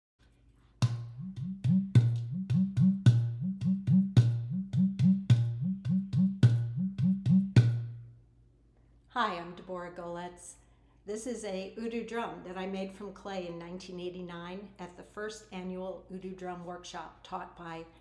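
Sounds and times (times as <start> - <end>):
clay drum played by hand: 0.8 - 8.0.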